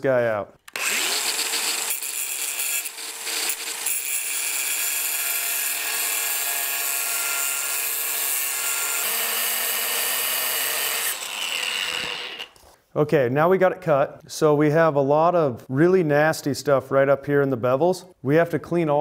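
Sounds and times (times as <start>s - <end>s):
angle grinder cutting steel: 0.7s - 12.6s.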